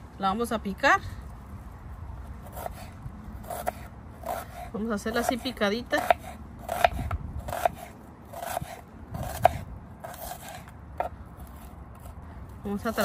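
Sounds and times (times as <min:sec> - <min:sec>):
knife slicing onion on board: 0:03.5 - 0:12.2.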